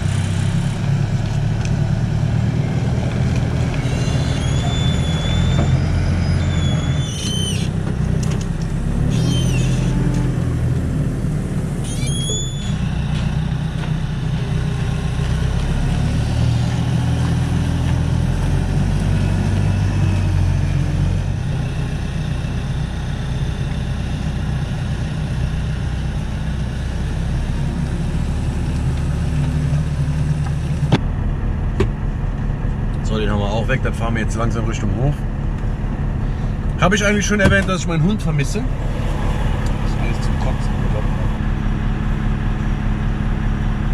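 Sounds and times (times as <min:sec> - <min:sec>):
forklift engine revving: 0:00.0 - 0:43.9
brief high squeaks: 0:03.8 - 0:07.8, 0:09.1 - 0:10.1, 0:11.8 - 0:12.9.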